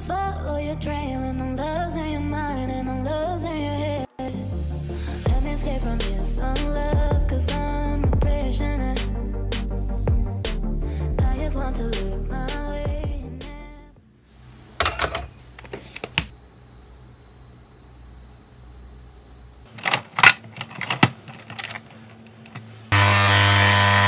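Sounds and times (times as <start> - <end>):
coffee machine pump buzzing: 22.9 - 24.0.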